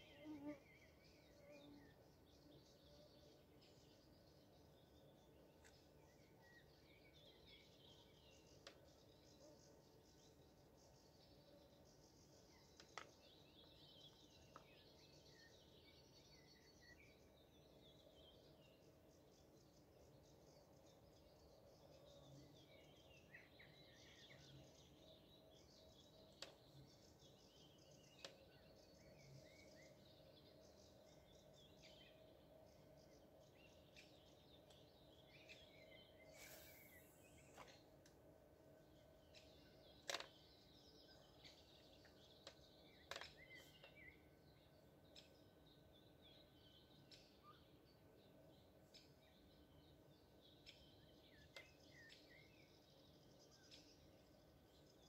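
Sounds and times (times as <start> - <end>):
small birds chirping and trilling: 0.0 - 55.0
short hiss: 36.3 - 37.5.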